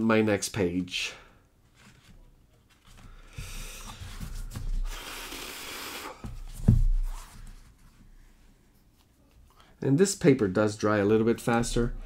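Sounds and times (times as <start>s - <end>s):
paper pages rustling: 1.6s - 4.9s.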